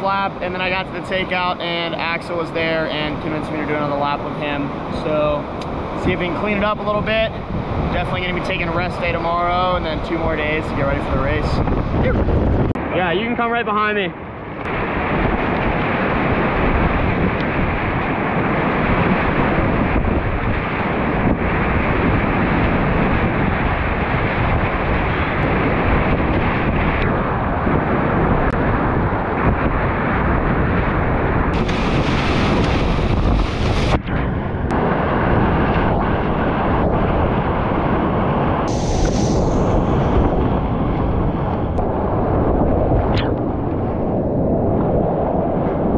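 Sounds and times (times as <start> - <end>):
water rushing and splashing: 31.5 - 34.0
sharp hissy splash: 38.7 - 40.2.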